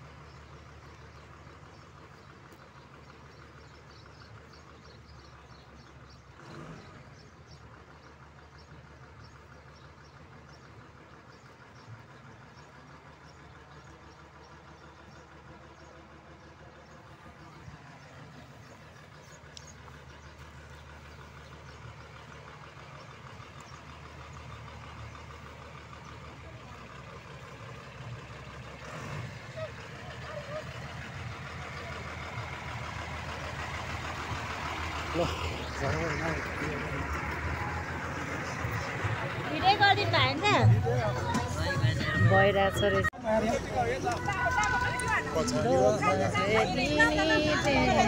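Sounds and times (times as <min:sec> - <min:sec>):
vehicle engine with road noise: 0:00.0 - 0:48.0.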